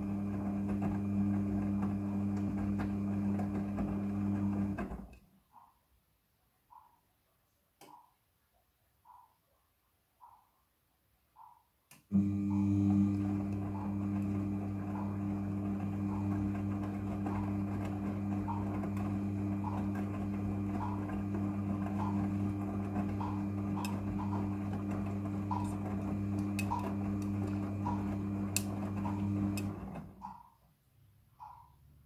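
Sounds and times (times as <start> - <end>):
washing machine motor humming: 0.0 - 5.1, 12.1 - 30.4.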